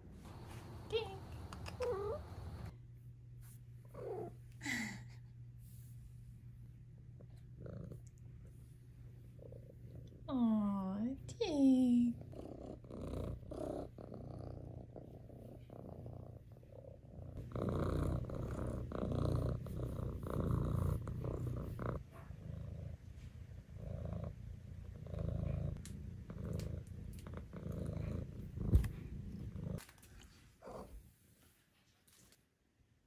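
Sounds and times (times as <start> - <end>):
kitten purring: 0.3 - 2.7, 7.0 - 29.9.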